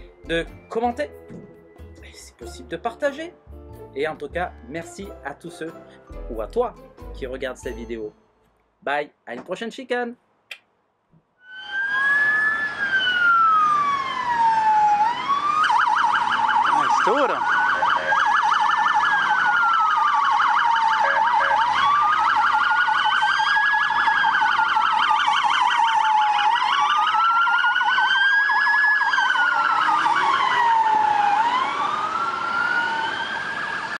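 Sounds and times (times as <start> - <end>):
police siren rapid yelp: 11.4 - 34.0
police siren wail: 11.4 - 34.0.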